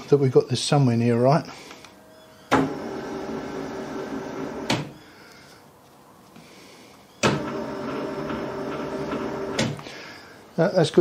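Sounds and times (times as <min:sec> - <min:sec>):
machine hum: 0:02.5 - 0:05.1, 0:07.2 - 0:10.0.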